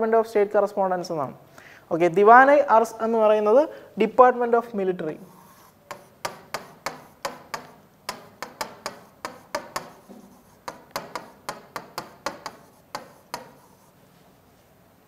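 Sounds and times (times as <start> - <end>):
pen tapping against writing board: 5.8 - 13.9.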